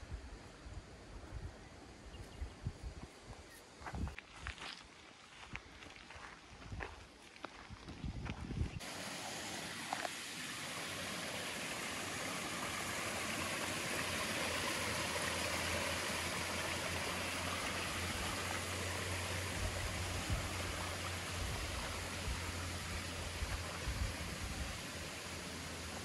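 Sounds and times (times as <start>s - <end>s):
stream water running: 8.8s - 26.0s.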